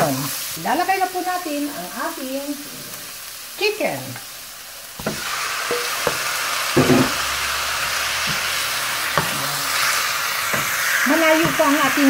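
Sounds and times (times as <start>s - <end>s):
chicken sizzling in hot oil: 0.0s - 12.0s
wooden spoon knocking on pan: 5.0s - 7.2s, 10.5s - 12.0s.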